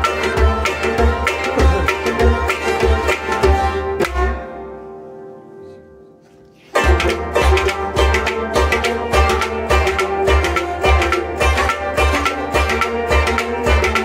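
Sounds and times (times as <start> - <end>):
hand drum on clay pot: 0.0 - 4.3, 6.7 - 14.0
bowed string instrument: 0.0 - 14.0.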